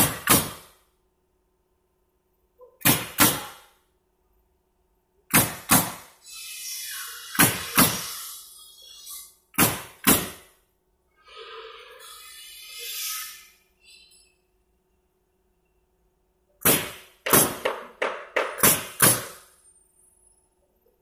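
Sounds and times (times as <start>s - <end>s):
pneumatic nailer firing: 0.0s - 0.8s, 2.8s - 3.8s, 5.3s - 8.4s, 9.5s - 10.5s, 16.6s - 19.6s
air hissing: 5.4s - 10.4s.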